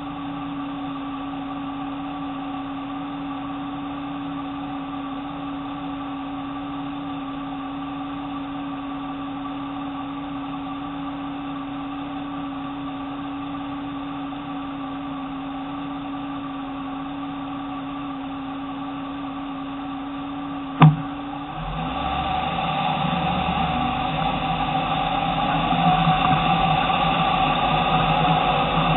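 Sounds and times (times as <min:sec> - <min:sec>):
sharp click: 0:20.8 - 0:21.2.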